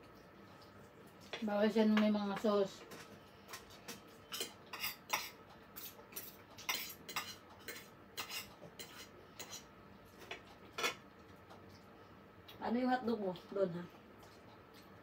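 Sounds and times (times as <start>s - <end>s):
cutlery clinking on a ceramic plate: 4.3s - 9.6s.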